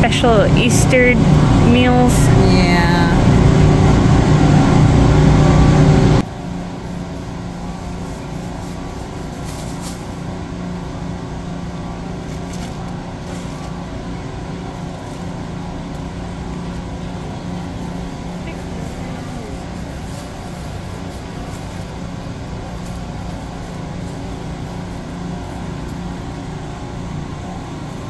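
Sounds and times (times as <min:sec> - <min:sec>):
low tone: 0:00.0 - 0:06.4
loud rushing noise: 0:00.0 - 0:07.2
refrigerated case and ventilation hum: 0:00.0 - 0:28.0.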